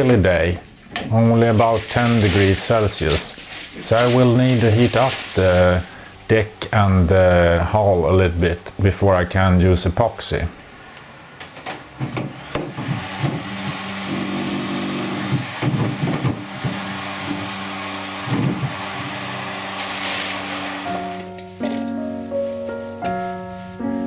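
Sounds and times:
fan heater blowing: 0:00.0 - 0:21.6
cover rustling: 0:01.4 - 0:05.9, 0:19.7 - 0:23.9.

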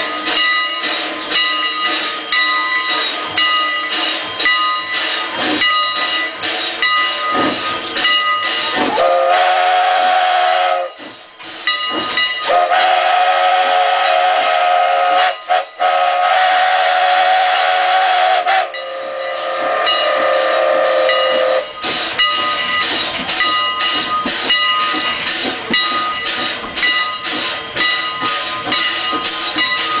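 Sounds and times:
steam locomotive chuffing: 0:00.0 - 0:30.0
steam whistle blasts: 0:08.8 - 0:11.0, 0:12.4 - 0:21.8.

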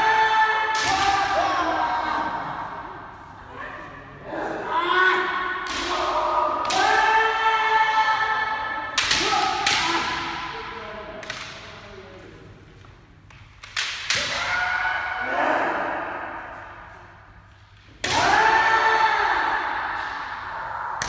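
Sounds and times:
people shouting: 0:00.0 - 0:02.8, 0:03.4 - 0:10.8, 0:14.1 - 0:16.9, 0:18.0 - 0:21.0.

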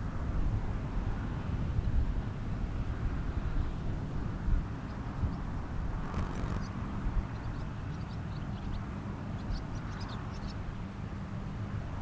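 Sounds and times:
wind rumbling on microphone: 0:00.0 - 0:12.0
small birds chirping: 0:04.8 - 0:10.7.

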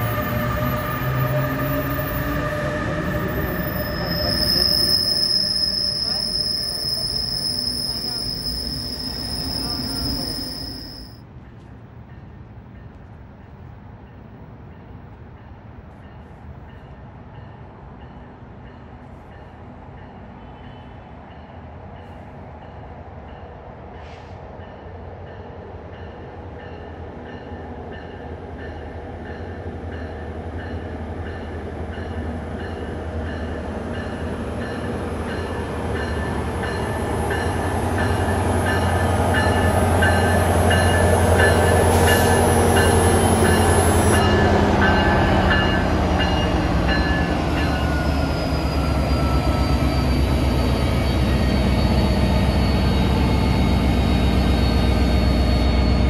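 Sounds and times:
diesel locomotive engine drone: 0:00.0 - 0:56.0
train rolling past: 0:00.0 - 0:56.0
locomotive bell ringing: 0:03.0 - 0:11.2, 0:30.6 - 0:55.8.

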